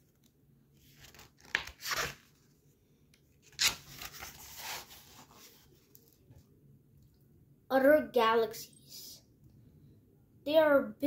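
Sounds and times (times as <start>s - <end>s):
book pages turning: 0.0s - 2.6s, 3.2s - 6.3s.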